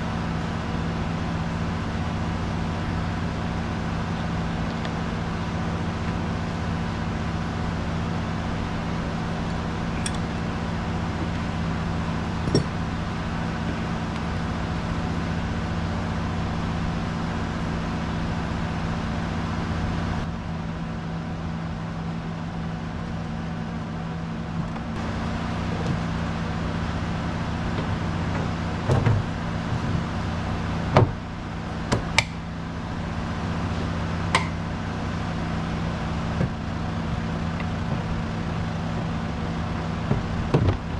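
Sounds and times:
engine drone: 0:00.0 - 0:40.9
metal knocks and clicks: 0:12.4 - 0:12.8.

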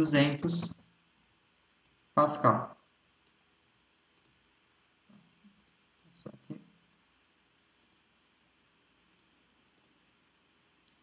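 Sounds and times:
room hiss: 0:00.0 - 0:11.0
computer mouse clicks: 0:03.2 - 0:03.4, 0:04.1 - 0:04.4, 0:05.1 - 0:07.1, 0:07.8 - 0:10.1, 0:10.8 - 0:11.0.

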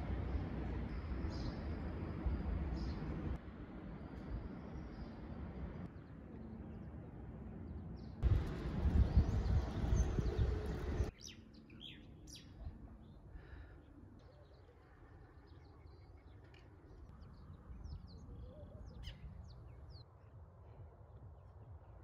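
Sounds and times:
street noise rumble: 0:00.0 - 0:11.1.

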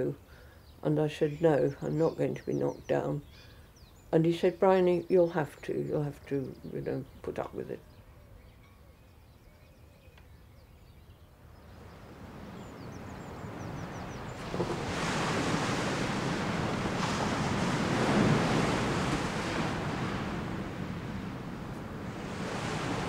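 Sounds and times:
waves breaking on a beach: 0:11.7 - 0:23.0.

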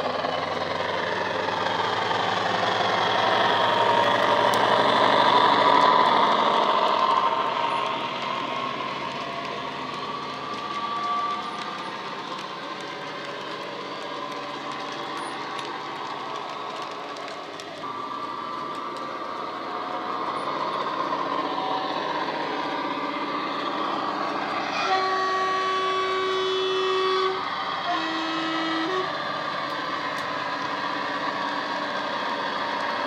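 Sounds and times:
model diesel engine sound: 0:00.0 - 0:33.0
two-tone train horn: 0:10.8 - 0:11.6, 0:24.6 - 0:29.2.

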